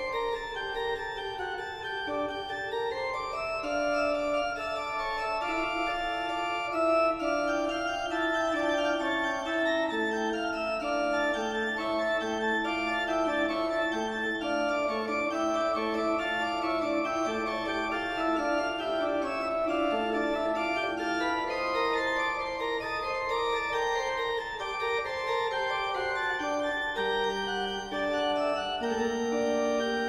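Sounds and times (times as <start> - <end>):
organ chords: 0.0 - 30.0.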